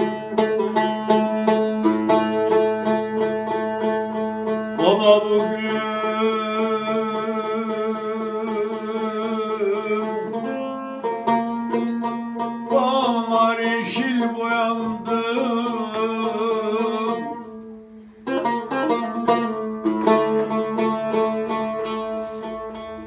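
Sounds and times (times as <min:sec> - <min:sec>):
plucked lute strings: 0:00.0 - 0:23.0
man singing: 0:04.8 - 0:10.6, 0:12.7 - 0:17.5.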